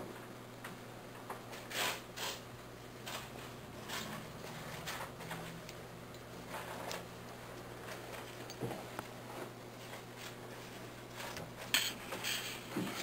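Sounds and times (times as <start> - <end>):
fingers rustling and scratching: 3.0 - 8.6.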